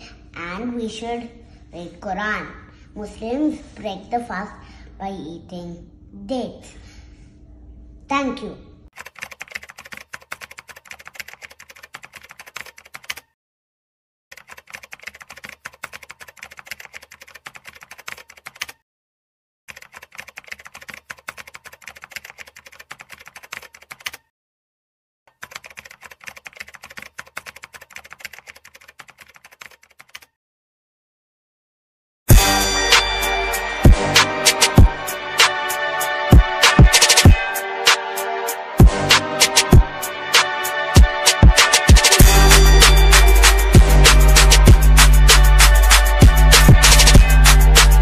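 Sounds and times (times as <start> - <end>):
keyboard typing clicks: 9.0 - 13.3, 14.3 - 18.8, 19.7 - 24.3, 25.3 - 30.3.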